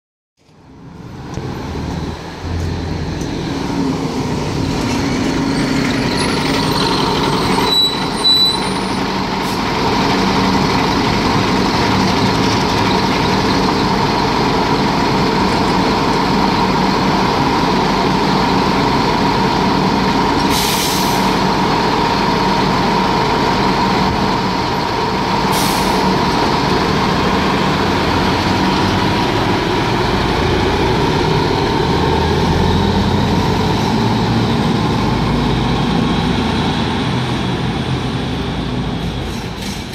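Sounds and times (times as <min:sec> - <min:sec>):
bus diesel engine idling: 0:02.2 - 0:39.9
compressed air hissing: 0:20.5 - 0:21.4.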